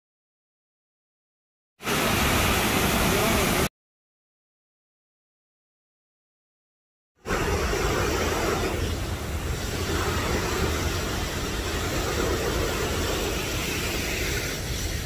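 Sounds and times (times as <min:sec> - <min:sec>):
waterfall roaring: 0:01.8 - 0:03.7, 0:07.3 - 0:15.0.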